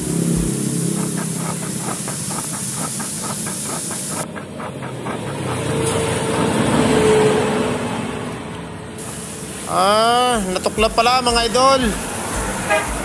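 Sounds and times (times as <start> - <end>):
steady hissing noise: 0.0 - 4.7, 9.0 - 13.0
low engine running: 0.0 - 6.7, 9.0 - 13.0.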